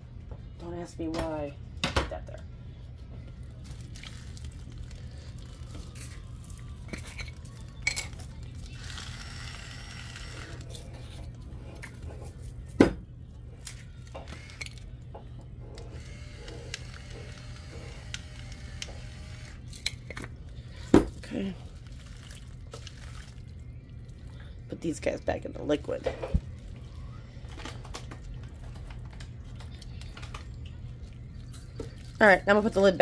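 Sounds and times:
low steady hum: 0.0s - 33.0s
metal tongs clinking and scraping: 6.9s - 8.3s.

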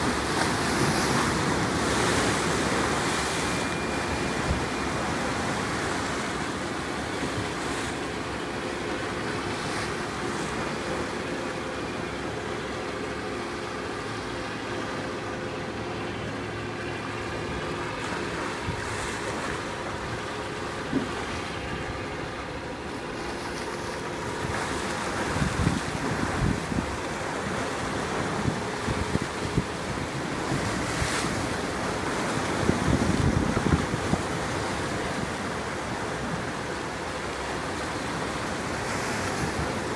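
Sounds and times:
boat engine hum: 0.0s - 39.9s
waves washing: 0.0s - 39.9s
wind on the microphone: 25.2s - 27.0s, 32.6s - 34.5s.

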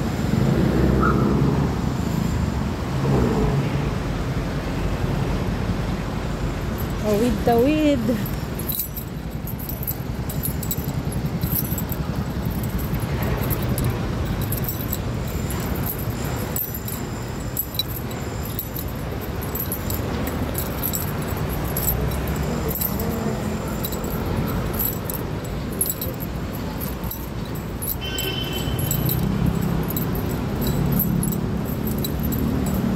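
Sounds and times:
low rumble of traffic: 0.0s - 32.9s
high jingling and clicking: 6.6s - 32.9s.

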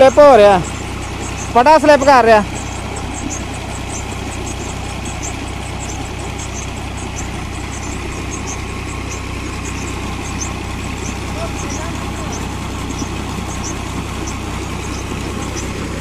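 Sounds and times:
drive belt squealing chirps: 0.0s - 16.0s
tractor engine running: 0.0s - 16.0s
water gushing from pipe: 0.0s - 16.0s.

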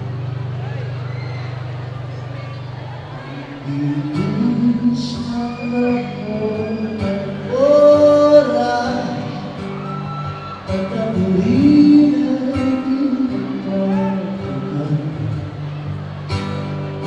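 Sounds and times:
man singing long notes: 3.3s - 9.7s, 10.6s - 15.5s.

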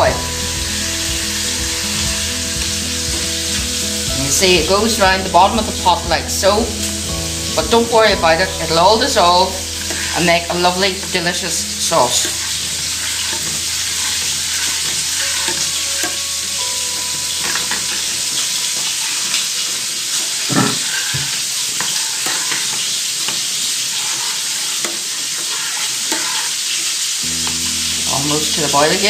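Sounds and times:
meat sizzling in butter: 0.0s - 29.0s
metal spoon scraping a saucepan: 9.2s - 16.2s, 20.4s - 27.0s.

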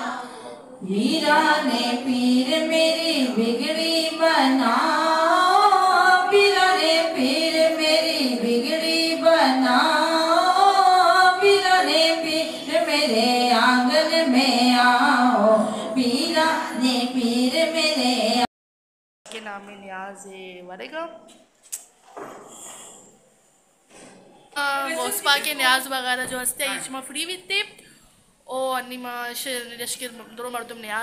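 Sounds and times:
woman singing unaccompanied: 0.8s - 18.5s.

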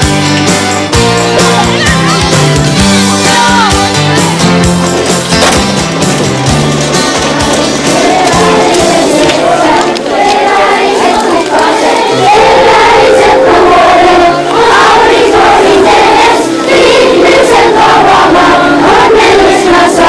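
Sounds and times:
crowd singing: 7.1s - 20.0s.

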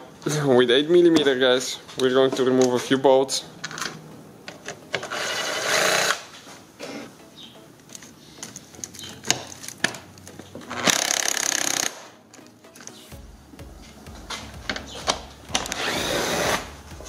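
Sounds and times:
cordless ratchet spinning bolts: 10.8s - 12.0s.

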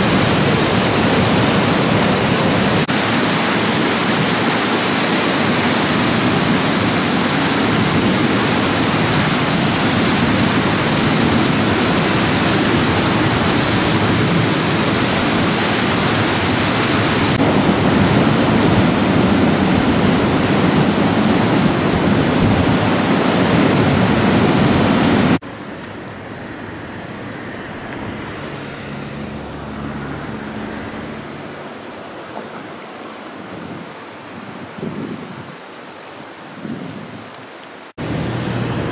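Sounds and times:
river rapids rushing: 0.0s - 38.9s.

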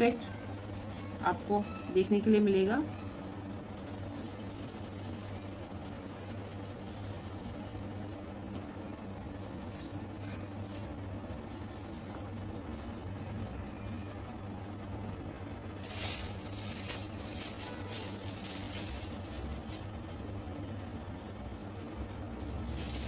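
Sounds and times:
pencil scratching on paper: 0.0s - 1.7s, 3.1s - 8.6s, 11.3s - 14.3s, 15.2s - 15.9s, 18.2s - 23.0s
steady low hum: 0.0s - 23.0s.

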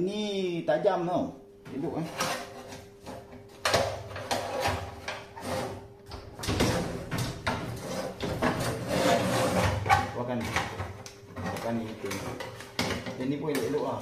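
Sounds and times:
sheet metal knocking and scraping: 2.1s - 13.6s.

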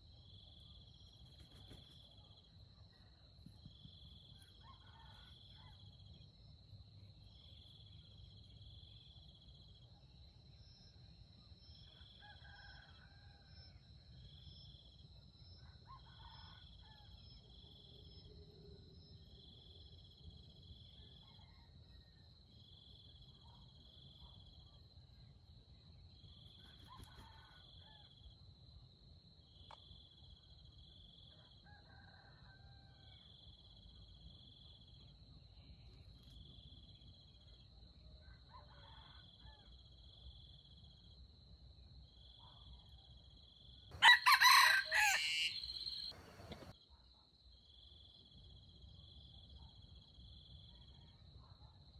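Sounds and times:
cricket trills: 0.0s - 51.9s
distant rooster crowing: 12.0s - 13.8s, 26.8s - 28.2s, 31.5s - 33.3s, 38.3s - 39.7s, 44.0s - 46.8s.

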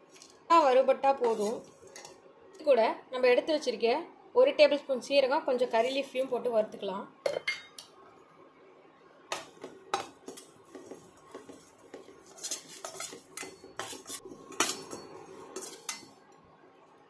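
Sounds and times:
metal spoon scraping a metal pan: 1.2s - 2.2s, 10.3s - 16.2s.

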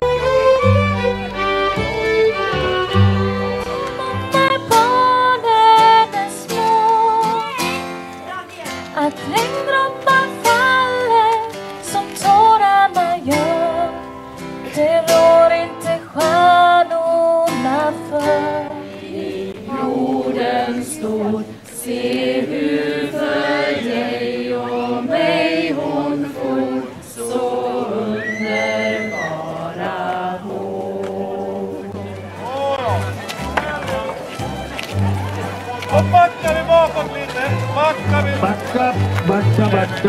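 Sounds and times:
strummed acoustic guitar: 0.0s - 19.0s
string accompaniment: 0.0s - 40.0s
woman singing: 3.9s - 7.6s, 8.9s - 21.9s
group singing in unison: 17.6s - 32.1s.

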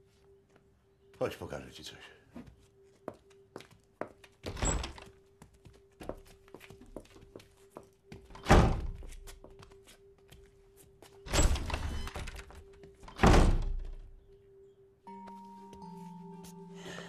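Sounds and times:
footsteps on workshop floor: 5.1s - 11.3s.

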